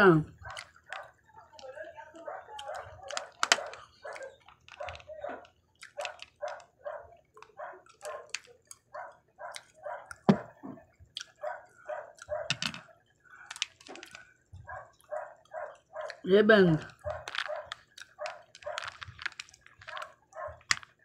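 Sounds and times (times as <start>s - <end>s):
dog barking: 2.1s - 10.5s, 11.4s - 12.6s, 14.6s - 16.2s, 17.0s - 19.0s, 19.8s - 20.7s.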